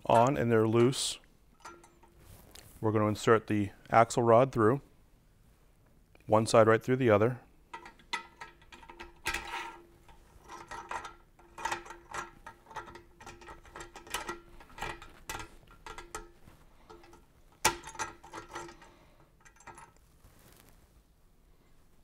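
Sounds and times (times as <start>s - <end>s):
metal rod scraping and clinking: 0.0s - 2.6s, 7.7s - 20.0s.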